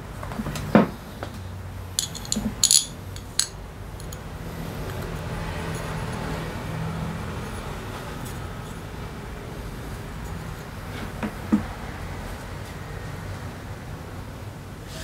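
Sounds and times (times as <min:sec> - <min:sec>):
metal parts knocking: 0:02.0 - 0:04.2
metallic clicks and clinks: 0:02.0 - 0:04.2.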